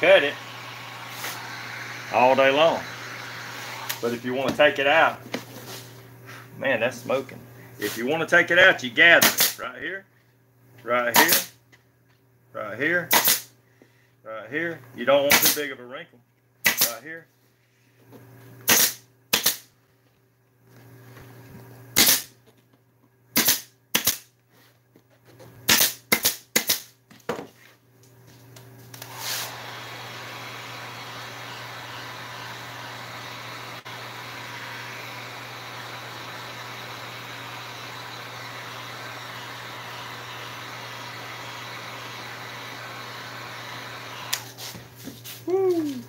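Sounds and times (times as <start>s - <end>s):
heat gun blowing hiss: 0.0s - 4.3s, 29.0s - 44.8s
pneumatic staple gun shots: 9.2s - 9.6s, 11.1s - 11.5s, 13.1s - 13.5s, 15.3s - 15.6s, 16.6s - 17.0s, 18.6s - 19.7s, 22.0s - 22.4s, 23.3s - 24.3s, 25.7s - 27.0s.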